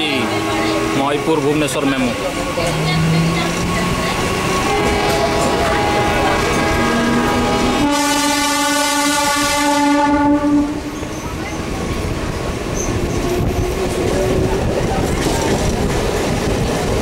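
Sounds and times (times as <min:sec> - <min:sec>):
train horn: 0:00.0 - 0:01.8, 0:02.7 - 0:11.0
train running on track: 0:00.0 - 0:17.0.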